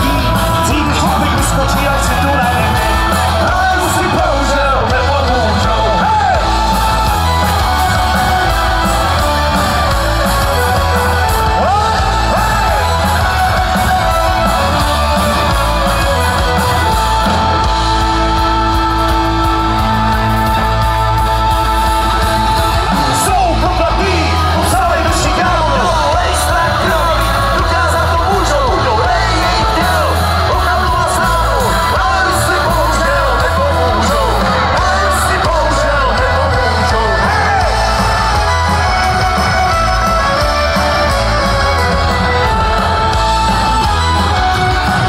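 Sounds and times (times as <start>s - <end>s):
live rock band: 0.0s - 45.0s
person singing: 0.0s - 45.0s.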